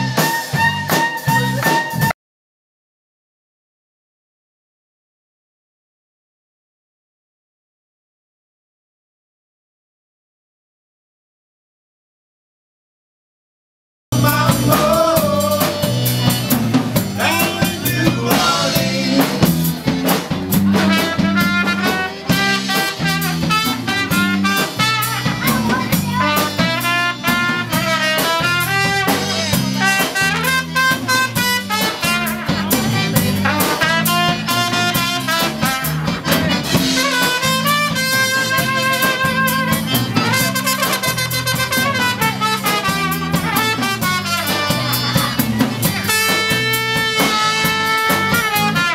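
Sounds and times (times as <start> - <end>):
electric bass: 0.0 - 2.1, 14.1 - 48.9
drum kit: 0.0 - 2.2, 14.1 - 48.9
trumpet: 0.0 - 2.2, 14.2 - 48.9
button accordion: 17.2 - 27.6, 30.7 - 48.9.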